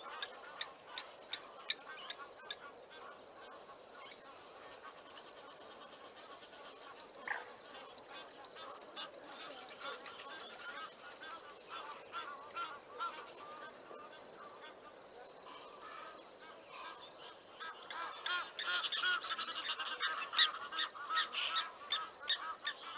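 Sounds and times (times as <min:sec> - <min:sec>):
geese honking: 0:05.6 - 0:14.9, 0:15.5 - 0:22.9.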